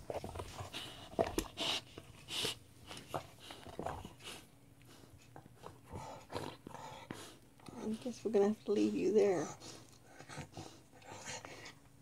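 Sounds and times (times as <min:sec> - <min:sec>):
dog chewing rubber toy: 0:00.0 - 0:08.1.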